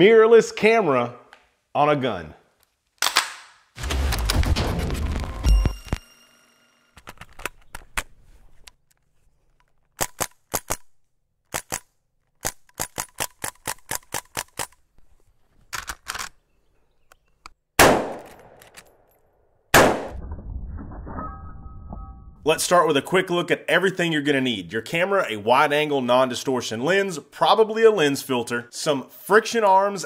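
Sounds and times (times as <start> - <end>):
air rifle shots: 17.8 - 18.6, 19.8 - 20.2
loud rifle shots echoing: 17.8 - 18.6, 19.8 - 20.2.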